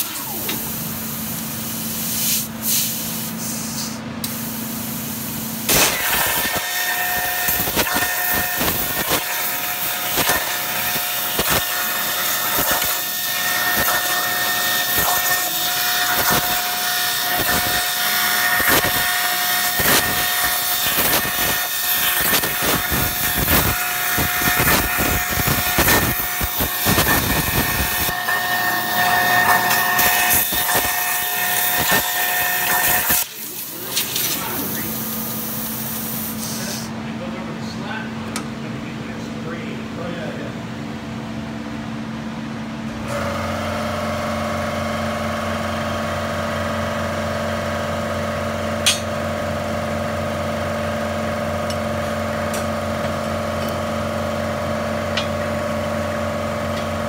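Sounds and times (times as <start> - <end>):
plasma torch cutting steel: 0.0 - 36.9, 48.8 - 49.1.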